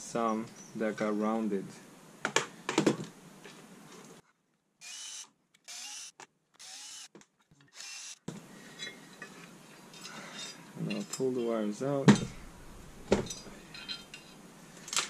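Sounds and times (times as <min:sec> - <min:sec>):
cordless drill motor whirring: 0:04.8 - 0:07.1, 0:07.7 - 0:08.3.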